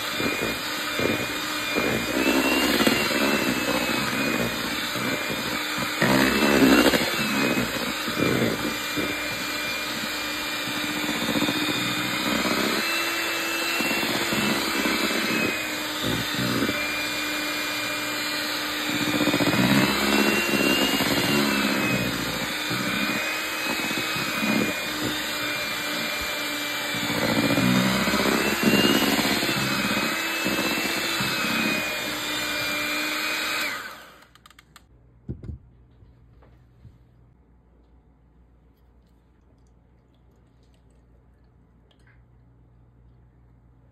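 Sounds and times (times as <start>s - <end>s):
electric hand mixer whine: 0.0s - 34.5s.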